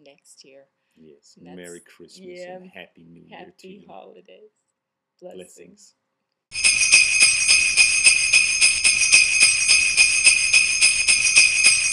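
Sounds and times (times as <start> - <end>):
jingle bells shaken: 6.6 - 11.9.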